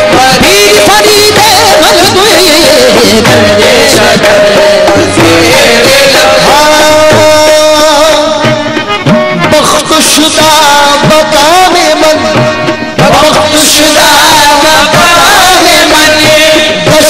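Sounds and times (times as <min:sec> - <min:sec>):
harmonium melody: 0:00.0 - 0:17.0
tabla drumming: 0:00.0 - 0:17.0.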